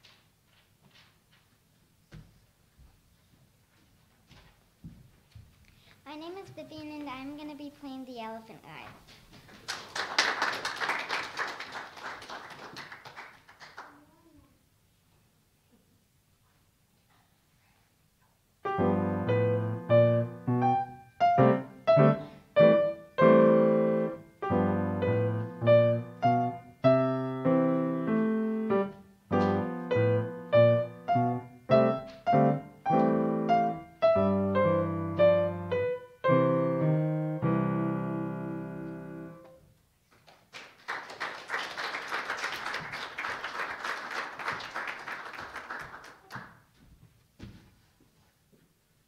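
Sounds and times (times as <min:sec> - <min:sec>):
audience applauding: 0:09.5 - 0:14.1, 0:40.2 - 0:46.6
grand piano chords: 0:18.6 - 0:39.6.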